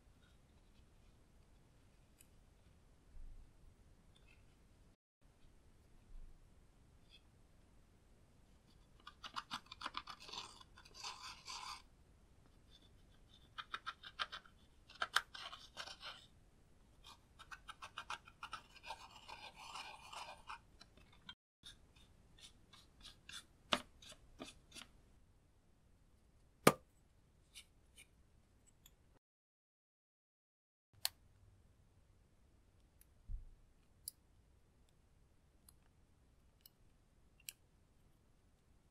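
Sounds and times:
tool scraping plastic palette: 17.0s - 24.9s.

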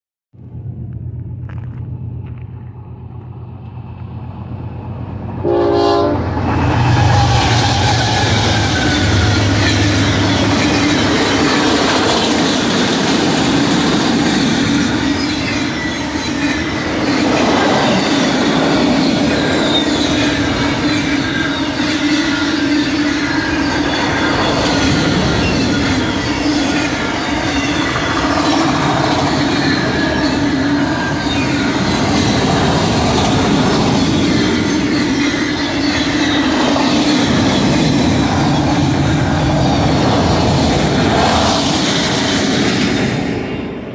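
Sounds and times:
locomotive engine drone: 0.4s - 43.9s
train wheels on rails: 0.5s - 43.9s
train horn blast: 5.4s - 9.8s.

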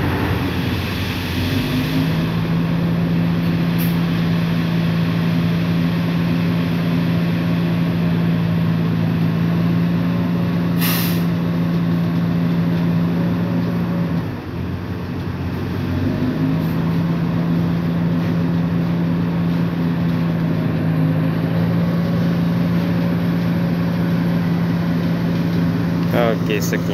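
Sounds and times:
diesel engines running: 0.0s - 26.9s
air hiss: 10.8s - 11.3s.

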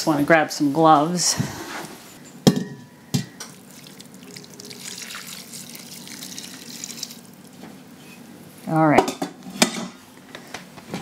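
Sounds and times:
liquid pouring into glass bowl: 3.4s - 7.5s.

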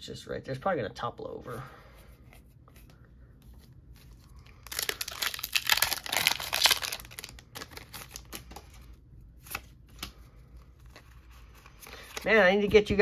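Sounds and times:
foil wrapper crinkling and tearing: 4.4s - 8.8s.

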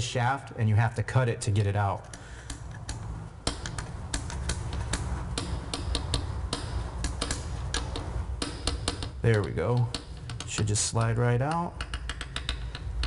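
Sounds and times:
steady low hum: 0.0s - 13.0s
light metallic clicks and taps: 1.6s - 13.0s.

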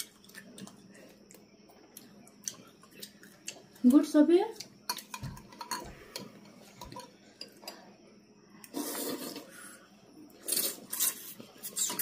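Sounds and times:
people slurping noodles: 8.6s - 12.0s.

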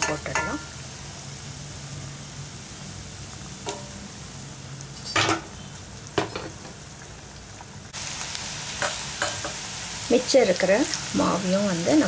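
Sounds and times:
metal skimmer knocking on pan: 0.0s - 0.7s, 3.6s - 4.0s
hot oil sizzling: 0.0s - 12.0s.

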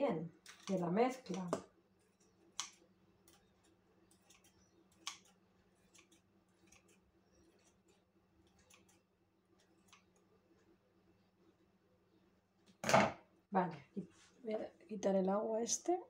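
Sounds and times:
scissors snipping: 0.4s - 9.0s.

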